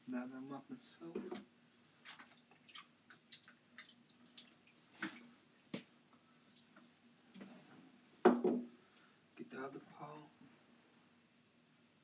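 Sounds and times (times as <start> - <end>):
water splashing and dripping: 2.0 - 5.9
loud knock: 8.2 - 8.7.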